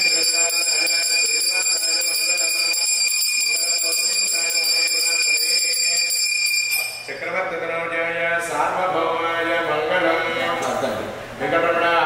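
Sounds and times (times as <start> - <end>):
bell ringing: 0.0 - 7.4.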